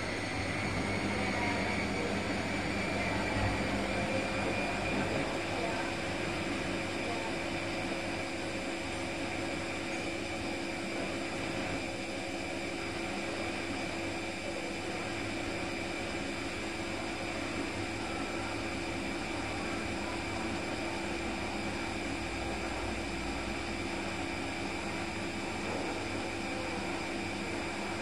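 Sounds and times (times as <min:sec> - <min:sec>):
washing machine humming: 0:00.0 - 0:28.0.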